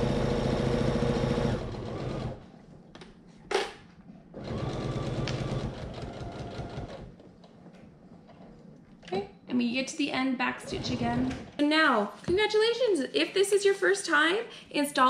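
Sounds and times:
sewing machine stitching: 0.0s - 2.5s, 4.4s - 7.2s.

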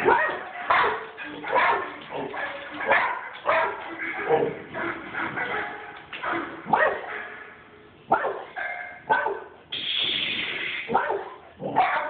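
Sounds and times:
dog barking: 0.0s - 9.6s, 10.9s - 12.0s
steady hiss-like noise: 9.4s - 11.6s.

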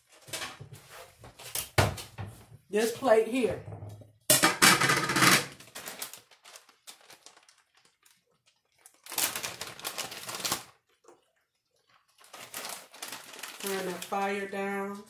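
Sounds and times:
plastic bag crinkling: 5.5s - 15.0s.

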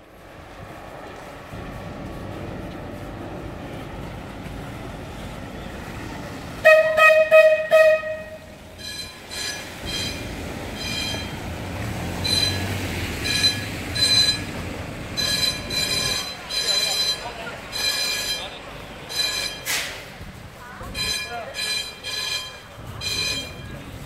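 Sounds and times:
tram horn blasts: 6.5s - 24.0s
high-pitched warning tone: 8.8s - 11.4s, 12.2s - 19.8s, 20.8s - 24.0s.

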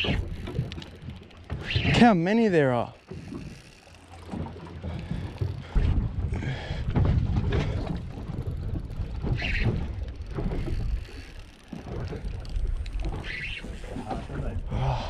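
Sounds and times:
wind rumbling on microphone: 4.8s - 11.1s.

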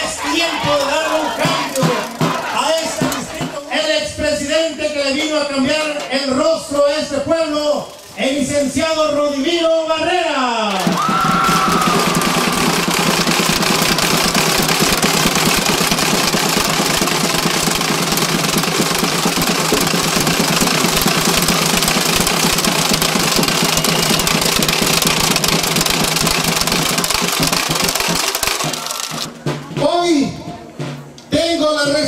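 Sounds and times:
crowd clapping: 0.0s - 3.6s, 10.7s - 29.3s
crowd cheering: 0.0s - 3.9s, 10.6s - 29.6s.

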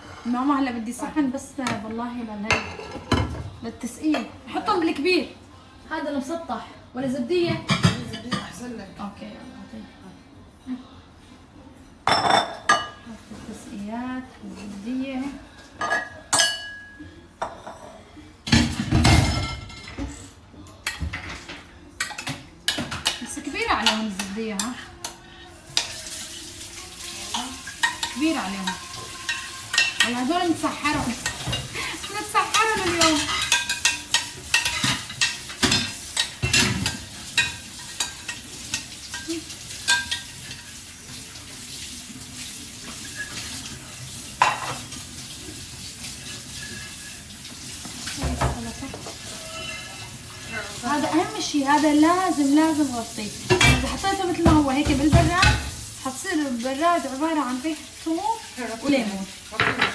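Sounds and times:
spoon clinking and scraping: 27.6s - 30.2s, 32.5s - 40.7s
spoon scraping bowl: 49.0s - 50.4s.

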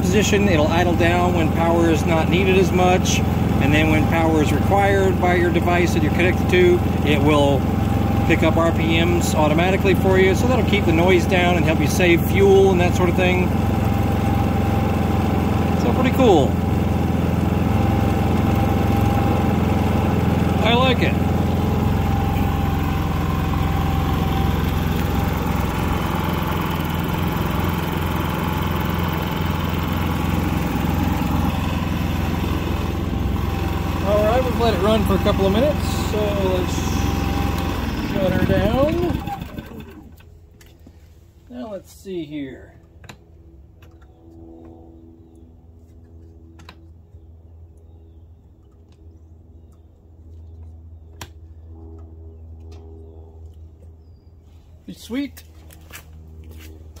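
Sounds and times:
generator engine idling: 0.0s - 41.1s.

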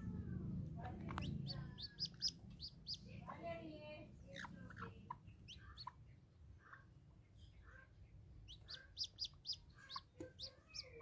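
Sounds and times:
chick peeping: 0.9s - 3.4s, 4.3s - 6.9s, 7.5s - 11.0s.

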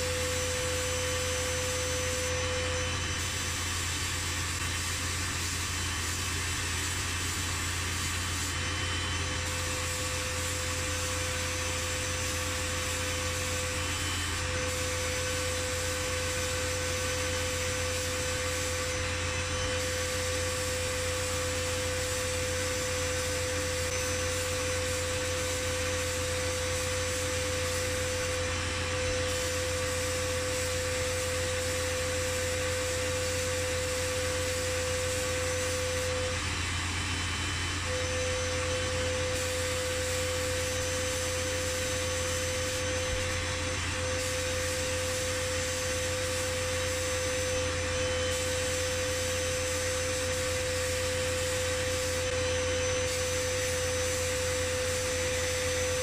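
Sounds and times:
low machine hum: 0.0s - 56.0s
steady machine whine: 0.0s - 56.0s
blast nozzle hissing: 3.2s - 8.6s, 9.4s - 36.4s, 37.8s - 56.0s.

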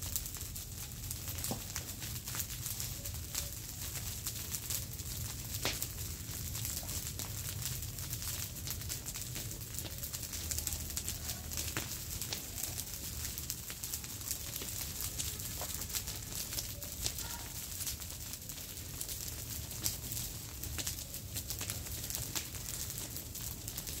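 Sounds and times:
brush fire crackling and popping: 0.0s - 24.0s.

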